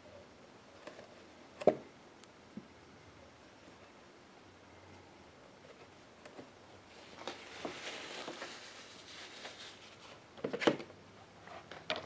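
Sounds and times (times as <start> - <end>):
soft rustle: 6.8 - 10.3.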